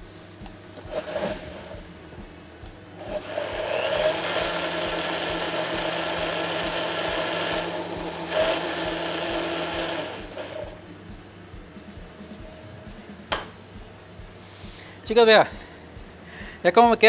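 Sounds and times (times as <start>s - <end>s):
electric blender running: 0.8s - 2.2s, 2.9s - 10.8s.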